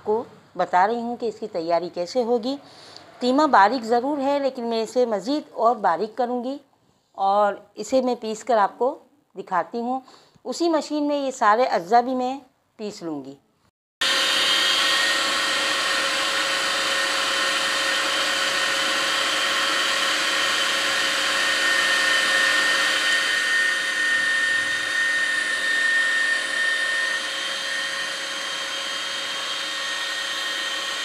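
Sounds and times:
electric meat grinder running: 14.0 - 31.0.

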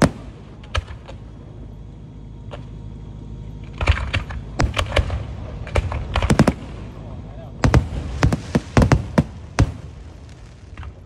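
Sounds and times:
firework shells bursting: 0.0 - 1.4, 3.6 - 11.0
firework crackles: 0.0 - 1.5, 3.8 - 11.0
low rumble: 0.0 - 11.0.

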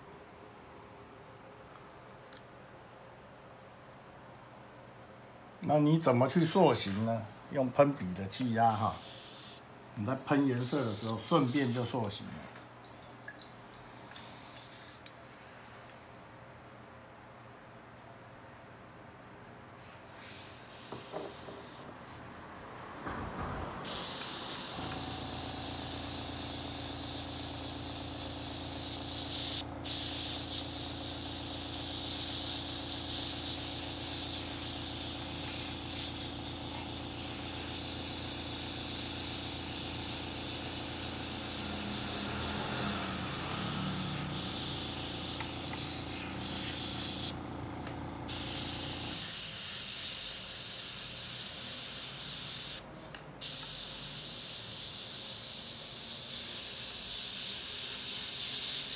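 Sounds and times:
airbrush spraying hiss: 8.6 - 9.7, 10.3 - 12.2, 14.0 - 15.9, 19.8 - 22.3, 23.8 - 52.8, 53.4 - 58.9
air compressor humming: 20.0 - 52.8.

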